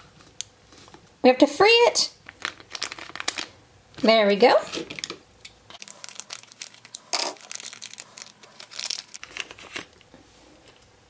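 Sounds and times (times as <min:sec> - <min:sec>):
plastic bag crinkling: 0:02.2 - 0:03.6, 0:04.7 - 0:10.0.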